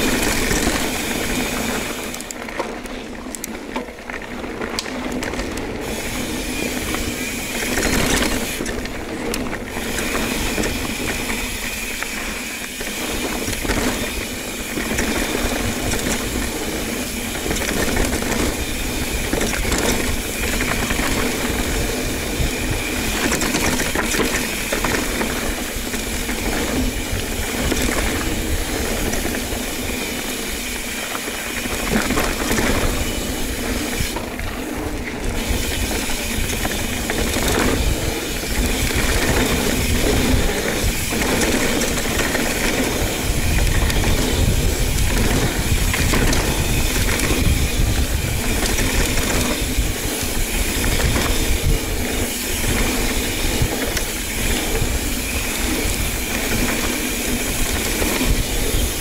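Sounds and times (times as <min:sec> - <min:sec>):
bike knocking and rattling: 0:00.0 - 0:59.0
tyre and wind rush: 0:04.7 - 0:59.0.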